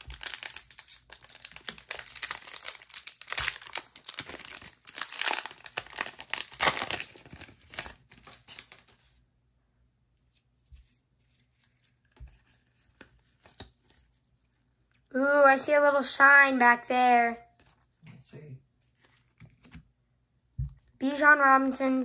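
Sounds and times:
wrapper tearing and crinkling: 0:00.0 - 0:09.0.

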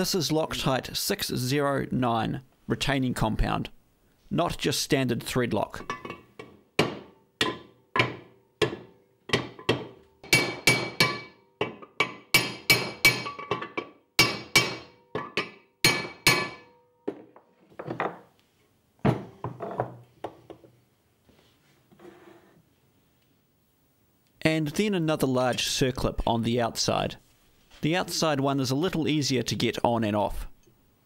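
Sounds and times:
hammer striking metal tube: 0:05.9 - 0:16.8.

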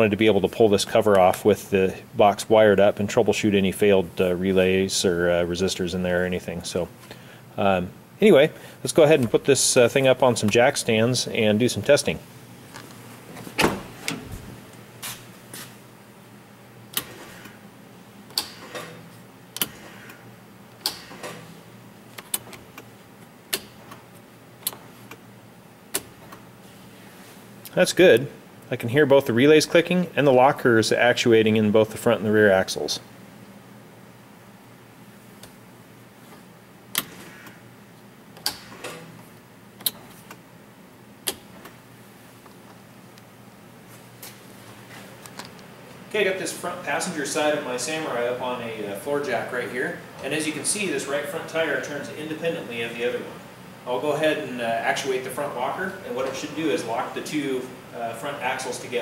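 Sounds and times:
actuator motors whirring: 0:16.8 - 0:25.3
switches and relays clicking: 0:16.9 - 0:17.6, 0:18.3 - 0:25.2, 0:25.9 - 0:26.5, 0:36.9 - 0:37.6, 0:38.3 - 0:40.4, 0:41.2 - 0:41.8
rocker switches clicking: 0:18.3 - 0:18.9, 0:19.6 - 0:19.8, 0:20.8 - 0:21.4, 0:41.2 - 0:41.8.

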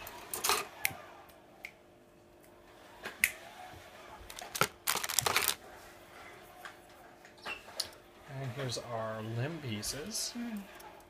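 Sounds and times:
plastic pieces clicking and clacking: 0:04.3 - 0:05.6.

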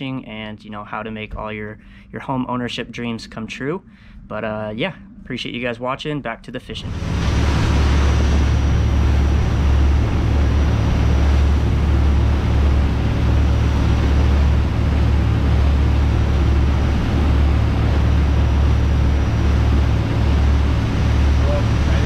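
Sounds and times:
wind: 0:03.1 - 0:22.0
boat engine droning: 0:06.7 - 0:22.0
water hissing: 0:06.8 - 0:22.0.

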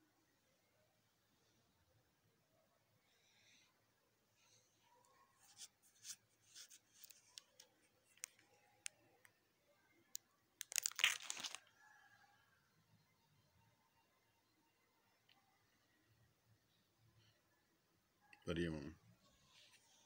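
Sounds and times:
plastic sleeves crinkling: 0:05.5 - 0:08.5, 0:10.1 - 0:11.7
page turning: 0:10.6 - 0:11.6.

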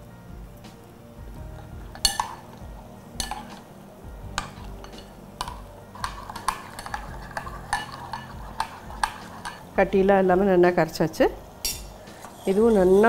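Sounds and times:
metal spoon clinking glass bowl: 0:01.9 - 0:02.5, 0:03.2 - 0:03.6, 0:04.4 - 0:09.6.

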